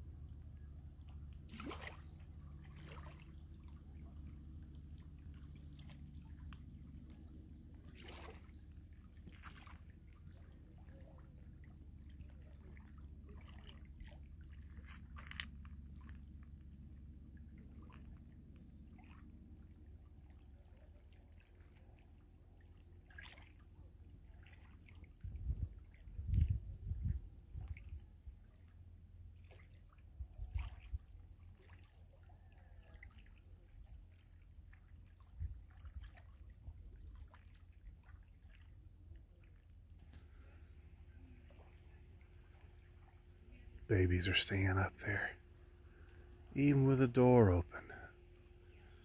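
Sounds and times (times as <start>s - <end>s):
steady low rumble: 0.0s - 21.0s, 25.0s - 28.8s
small waves lapping among boulders: 0.0s - 43.9s
small water splashes: 0.1s - 43.9s.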